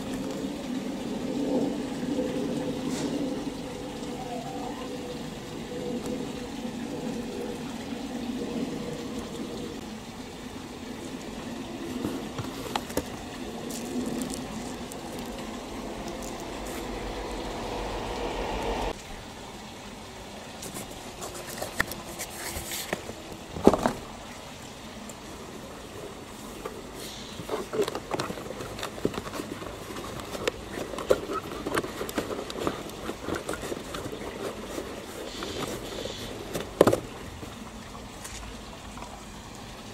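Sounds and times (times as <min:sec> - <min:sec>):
steady rushing noise with hum: 0:05.1 - 0:20.2
cardboard box flaps rustling: 0:12.0 - 0:15.4.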